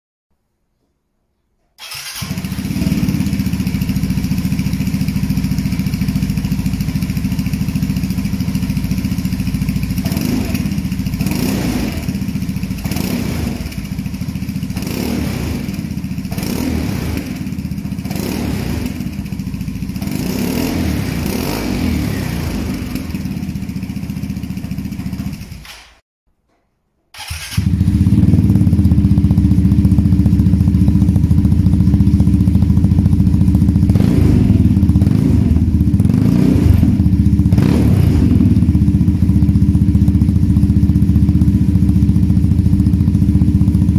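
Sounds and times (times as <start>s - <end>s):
scooter engine idling and revving: 1.8s - 26.0s, 27.2s - 43.9s.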